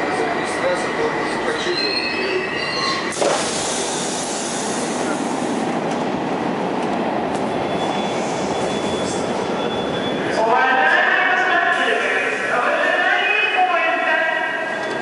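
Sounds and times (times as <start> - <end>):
subway train stopping: 0.0 - 15.0
train standing at platform: 0.0 - 15.0
high wheel squeal: 1.4 - 3.2.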